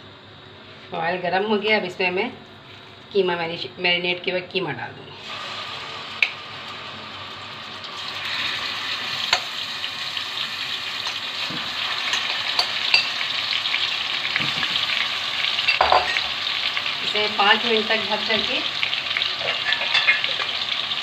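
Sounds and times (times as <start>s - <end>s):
meat sizzling in hot oil: 5.2s - 21.0s.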